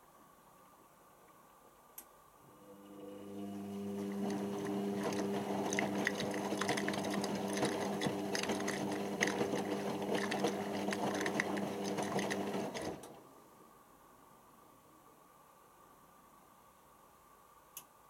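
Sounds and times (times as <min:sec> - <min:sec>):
washing machine motor hum: 0:02.5 - 0:13.2.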